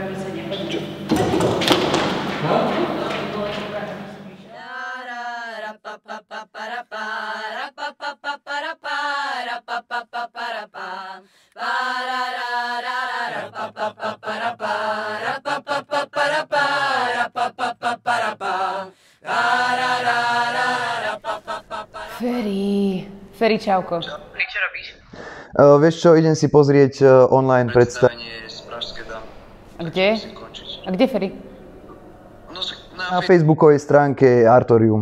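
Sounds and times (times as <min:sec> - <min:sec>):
higher voice chanting: 0:12.8 - 0:23.2
lower voice chanting: 0:19.2 - 0:23.2.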